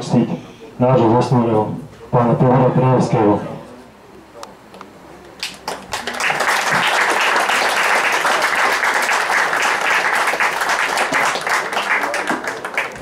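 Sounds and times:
crowd applauding: 0:05.4 - 0:13.0.

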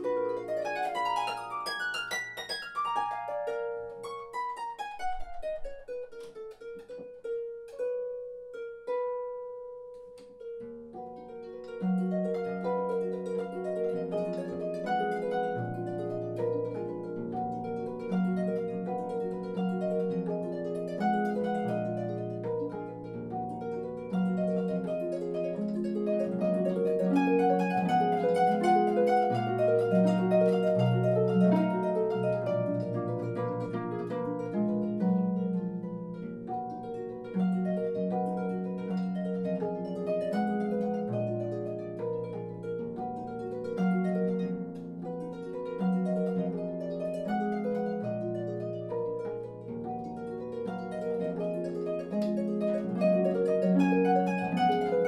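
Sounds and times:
harp playing: 0:00.0 - 0:55.0.

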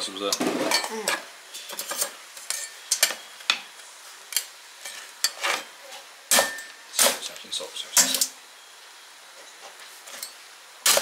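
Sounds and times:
kitchenware clicking and clinking: 0:00.3 - 0:03.2, 0:08.0 - 0:08.3.

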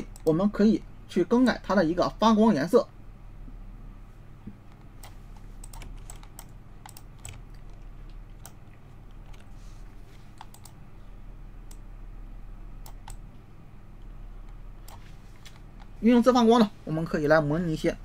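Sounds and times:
low electrical hum: 0:00.0 - 0:18.0
mouse and keyboard clicks: 0:04.7 - 0:09.5, 0:10.2 - 0:10.8, 0:14.4 - 0:15.9.

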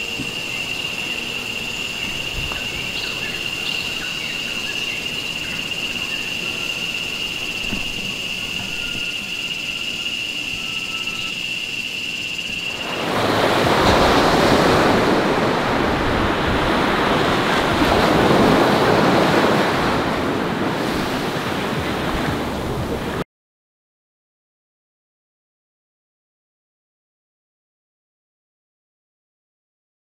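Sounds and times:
high insect drone: 0:00.0 - 0:23.2
surf breaking on beach: 0:12.7 - 0:23.2.

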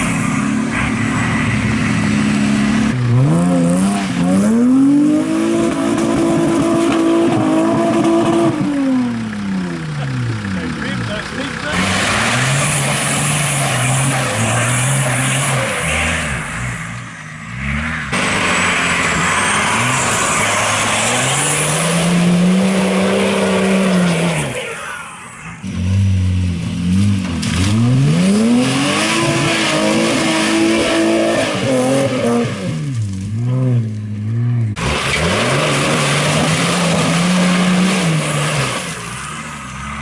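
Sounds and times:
engines revving in mud: 0:00.0 - 0:40.0.

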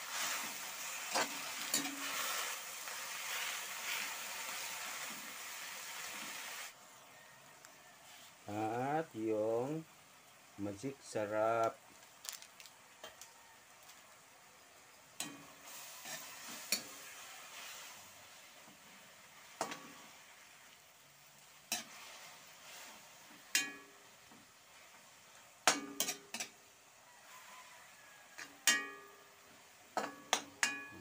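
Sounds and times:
faint sizzle: 0:00.0 - 0:31.0
metal ladle clinking on wok: 0:23.5 - 0:23.9, 0:30.0 - 0:31.0.

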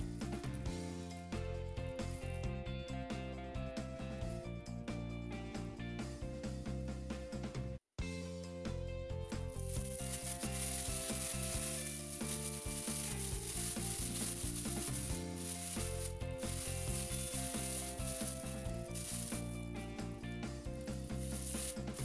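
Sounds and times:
faint background music: 0:00.0 - 0:07.3, 0:08.0 - 0:22.0
plastic bag crinkling: 0:09.5 - 0:19.6, 0:21.1 - 0:22.0.

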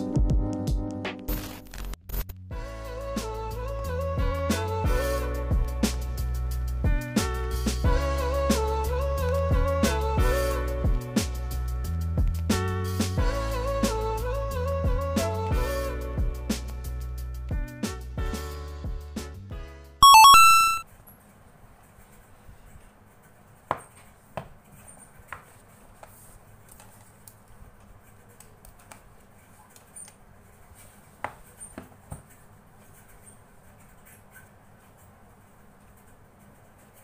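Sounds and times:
bright chime: 0:20.0 - 0:20.8.

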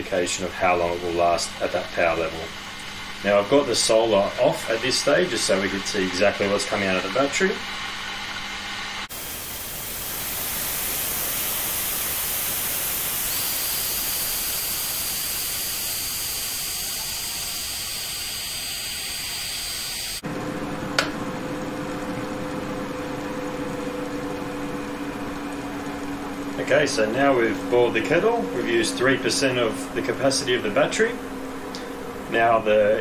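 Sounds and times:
cooling fan humming: 0:00.0 - 0:33.0
electric kettle boiling: 0:00.1 - 0:33.0
kettle switch click: 0:21.0 - 0:21.2.

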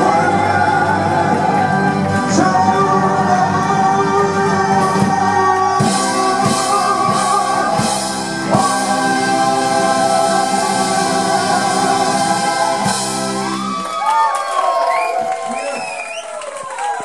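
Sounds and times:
man singing: 0:00.0 - 0:13.2
rock and roll band playing: 0:00.0 - 0:14.1.

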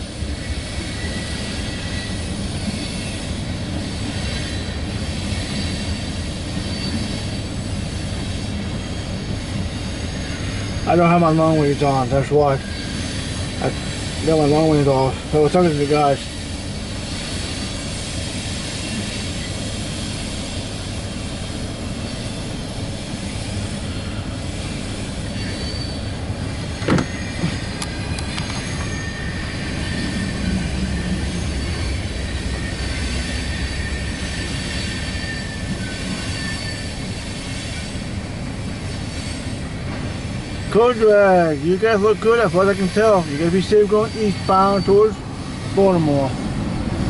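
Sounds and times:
train wheels rumbling on rail: 0:00.0 - 0:47.0
high-pitched wheel squeal: 0:00.7 - 0:15.2, 0:22.0 - 0:38.1, 0:42.3 - 0:46.3
sharp squeak: 0:05.4 - 0:07.6, 0:12.6 - 0:13.5, 0:23.7 - 0:38.0, 0:43.7 - 0:45.2.

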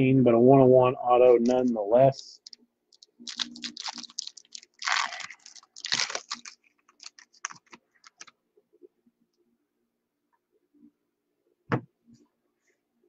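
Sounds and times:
plastic packaging crinkling: 0:02.4 - 0:08.4.

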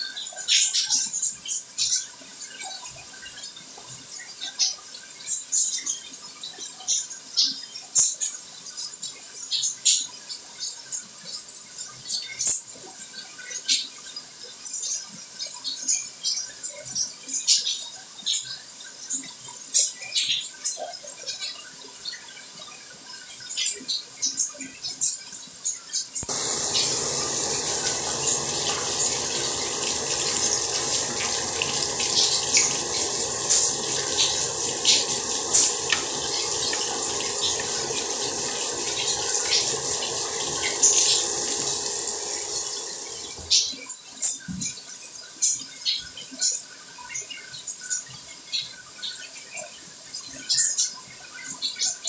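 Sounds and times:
water dripping: 0:26.2 - 0:43.4
tap pouring into a sink: 0:26.2 - 0:43.6.

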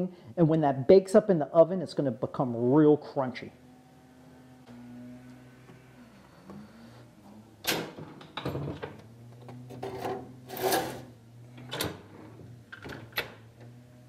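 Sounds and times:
oven door shutting: 0:07.6 - 0:09.0
metal clanks and scrapes: 0:09.7 - 0:11.1.

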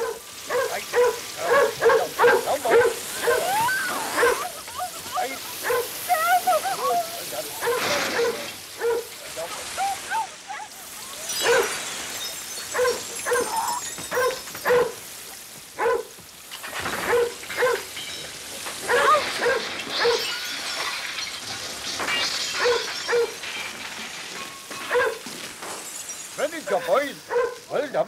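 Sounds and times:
dog barking: 0:00.0 - 0:05.9, 0:07.6 - 0:09.1, 0:11.4 - 0:11.8, 0:12.7 - 0:15.0, 0:15.8 - 0:16.2, 0:17.0 - 0:17.9, 0:18.8 - 0:20.3, 0:22.6 - 0:23.4, 0:24.9 - 0:25.2, 0:26.7 - 0:27.7
fire hose spraying water: 0:00.0 - 0:28.0.

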